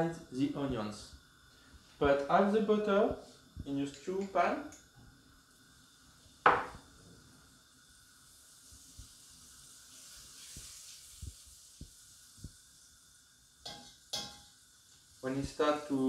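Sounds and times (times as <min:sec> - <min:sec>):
butter sizzling faintly: 0:00.0 - 0:16.0
soft knocks in pot: 0:06.5 - 0:06.8.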